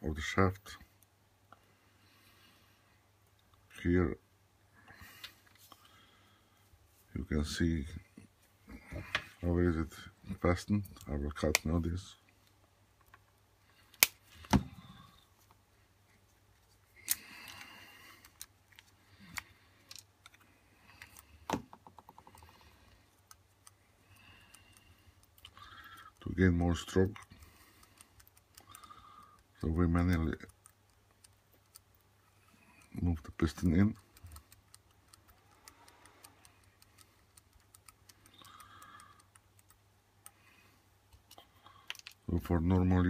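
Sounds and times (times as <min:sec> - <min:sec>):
small parts clicking and knocking: 0:17.0 - 0:42.3.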